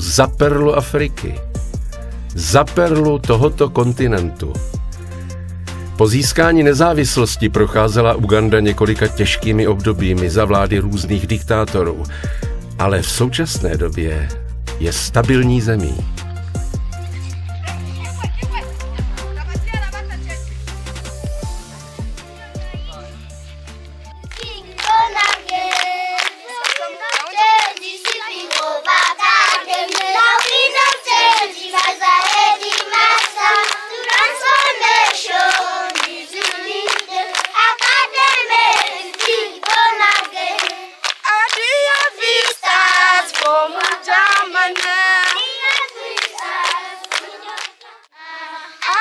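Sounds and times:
hands clapping: 15.2 - 20.0, 23.7 - 48.1, 48.8 - 49.0
children singing: 24.4 - 41.0, 41.6 - 49.0.

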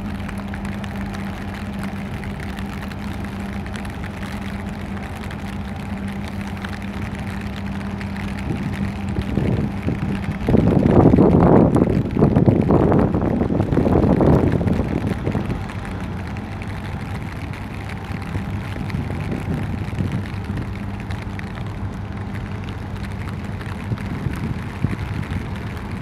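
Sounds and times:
marine engine hum: 0.0 - 26.0
wind rumbling on microphone: 0.0 - 26.0.

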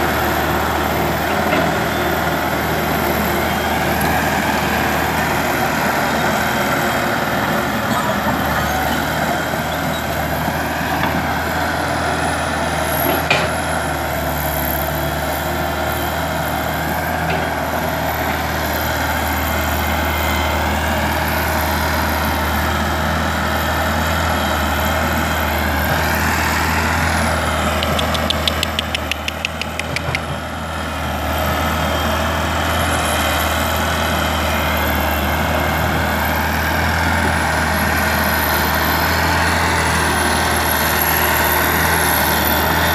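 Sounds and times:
excavator diesel engine working: 0.0 - 42.9
rapid clicks: 27.8 - 30.2.

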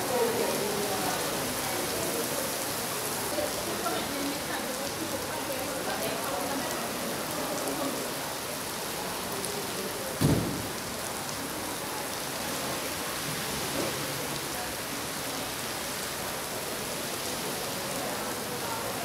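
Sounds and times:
heavy rain on cars: 0.0 - 19.0
short low thump: 10.2 - 10.7.

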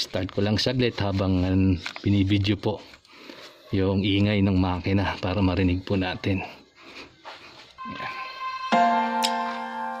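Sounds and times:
soft keyboard chords: 8.7 - 10.0.

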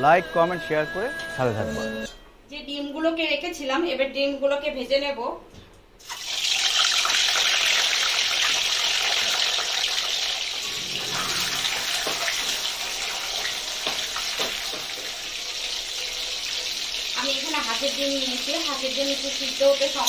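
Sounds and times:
eggs sizzling in hot oil: 6.0 - 20.0.

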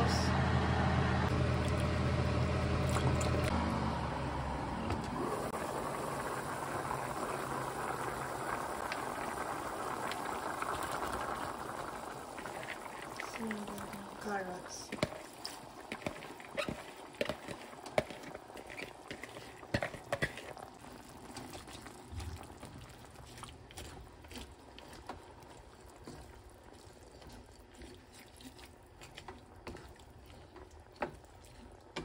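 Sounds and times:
broth simmering and bubbling: 1.3 - 32.0
wooden spoon stirring in pan: 8.6 - 32.0.

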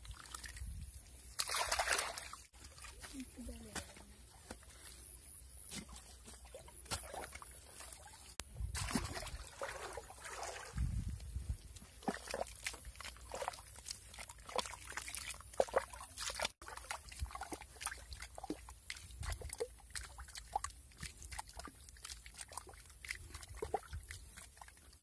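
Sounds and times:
hands squelching wet mud: 0.0 - 25.0.

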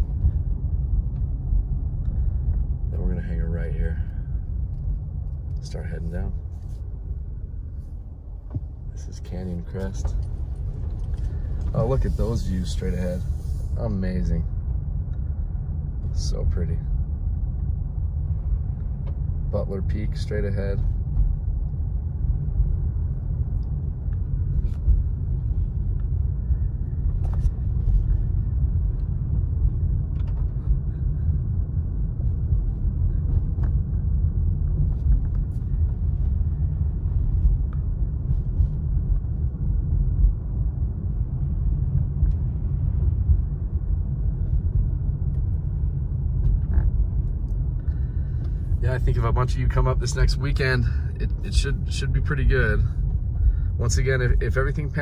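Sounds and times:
car interior rumble: 0.0 - 55.0.

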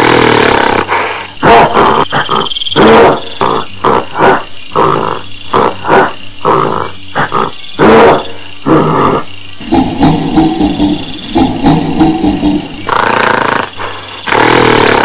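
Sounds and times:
gorilla grunts and barks: 0.0 - 15.0
gorilla roars: 0.0 - 15.0.

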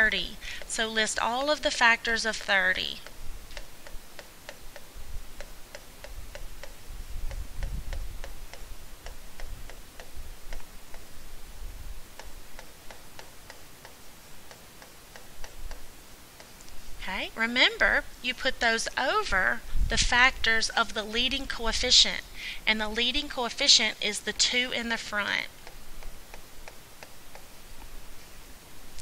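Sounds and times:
stylus tapping on tablet screen: 0.0 - 11.1, 25.5 - 28.0.

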